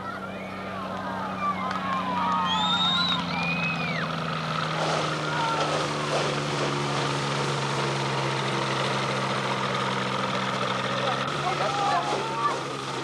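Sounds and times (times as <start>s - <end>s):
engine and propeller droning: 0.0s - 13.0s.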